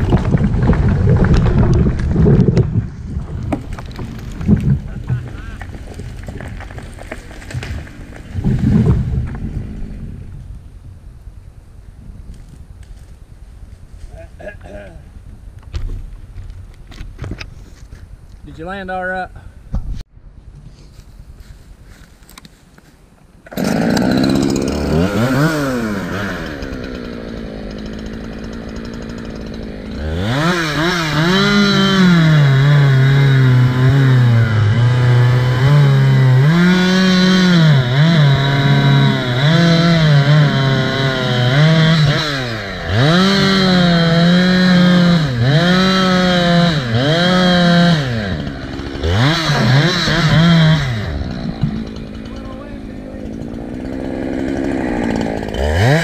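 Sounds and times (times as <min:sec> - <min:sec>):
chainsaw revving and cutting: 0:23.5 - 0:56.0.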